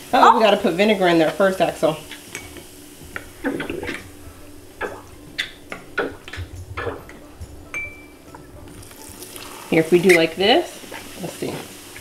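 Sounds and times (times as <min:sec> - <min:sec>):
liquid dripping: 0:02.0 - 0:11.0.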